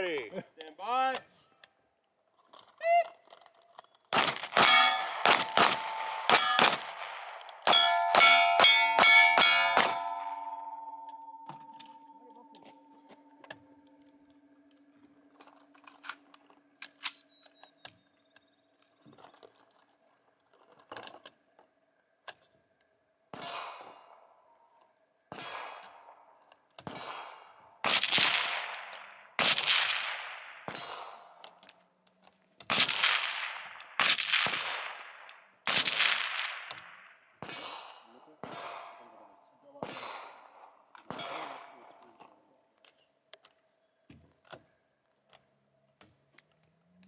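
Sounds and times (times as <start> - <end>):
rifle shots echoing: 4.1 - 12.2, 25.3 - 26.2, 26.8 - 31.6, 32.7 - 42.0.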